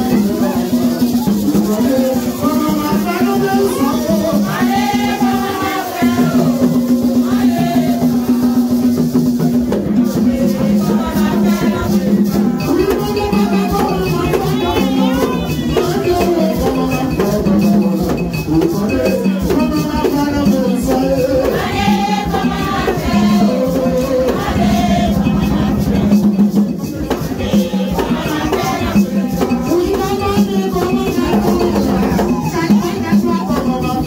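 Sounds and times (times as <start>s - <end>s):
rattle shaken rhythmically: 0.0s - 34.0s
person singing: 9.8s - 34.0s.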